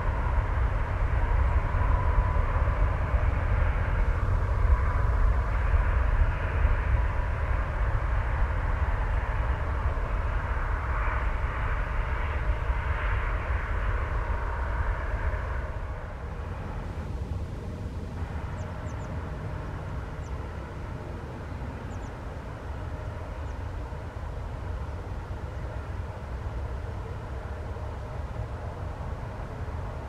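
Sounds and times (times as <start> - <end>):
jet engines roaring on takeoff: 0.0 - 30.0.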